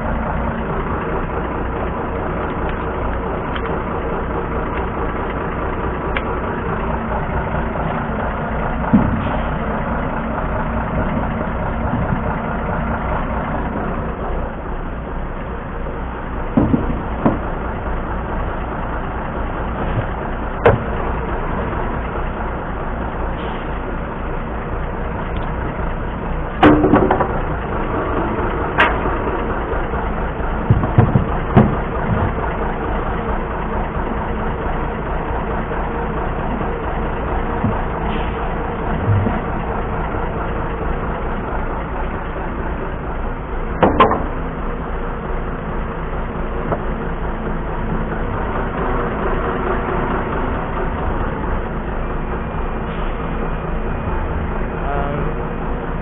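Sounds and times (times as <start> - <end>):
diesel engine running: 0.0 - 56.0
sharp knocks: 16.5 - 17.4, 19.8 - 20.9, 30.6 - 32.4, 43.8 - 44.4.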